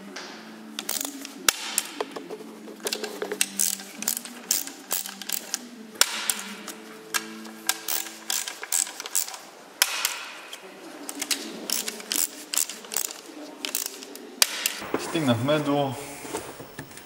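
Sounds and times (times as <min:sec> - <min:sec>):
ratchet wrench clicking: 0:03.4 - 0:05.6, 0:07.8 - 0:09.4.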